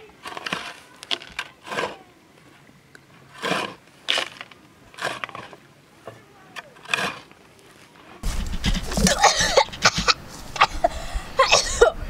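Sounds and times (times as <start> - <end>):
tool scraping into loose earth: 0.2 - 2.0, 3.1 - 5.6, 6.7 - 10.8.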